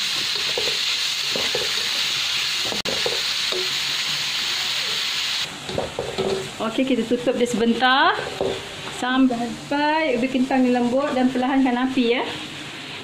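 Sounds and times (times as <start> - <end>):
potato and onion sizzling in oil: 0.0 - 13.0.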